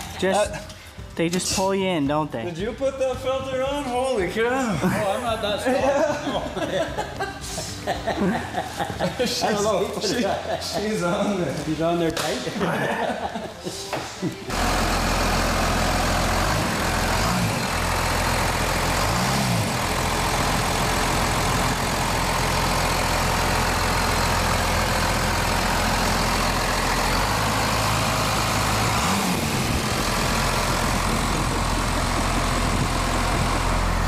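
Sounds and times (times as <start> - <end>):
diesel engine running: 14.5 - 34.0.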